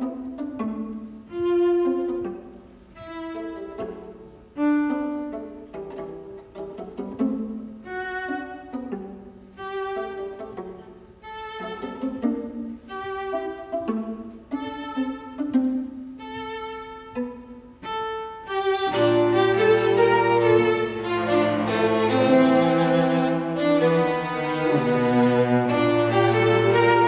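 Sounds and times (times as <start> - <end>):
string quartet playing: 0.0 - 27.0.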